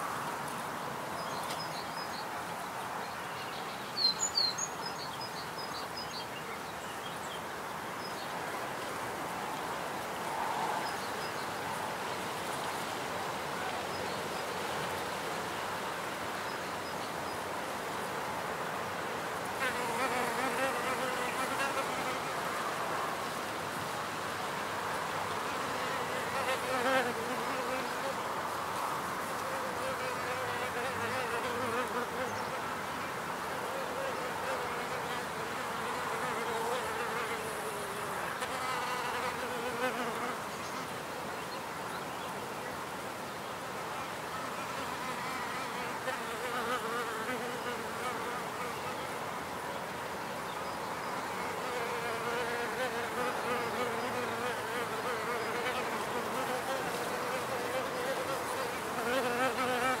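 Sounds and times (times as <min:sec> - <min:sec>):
bees buzzing: 0:51.6 - 1:00.0.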